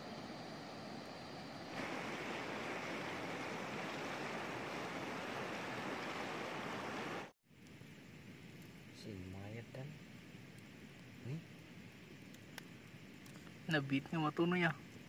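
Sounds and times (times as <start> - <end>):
quiet hiss: 0.0 - 15.0
river flowing over rocks: 1.8 - 7.3.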